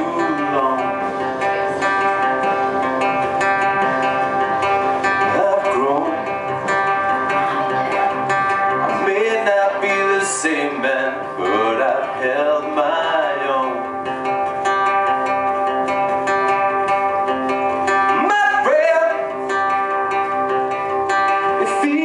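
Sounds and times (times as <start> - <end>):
man singing: 0.0 - 1.6, 5.0 - 7.1, 7.9 - 14.1, 17.9 - 20.0, 20.8 - 22.0
strummed acoustic guitar: 0.0 - 22.0.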